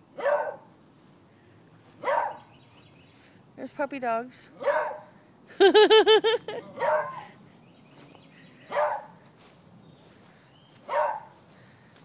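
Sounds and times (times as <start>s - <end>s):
puppies barking: 0.2s - 0.7s, 2.0s - 2.5s, 4.6s - 5.1s, 6.5s - 7.4s, 8.6s - 9.2s, 10.8s - 11.4s.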